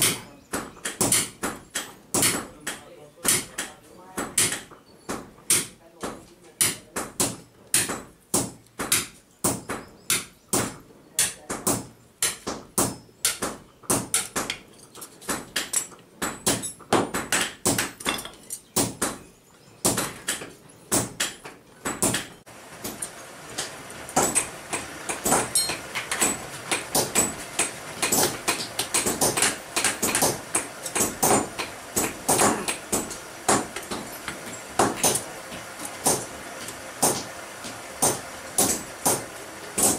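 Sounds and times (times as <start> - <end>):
hammer striking hot steel on anvil: 0.0 - 3.7, 22.0 - 37.3, 38.0 - 39.9
steady background noise: 0.0 - 39.9.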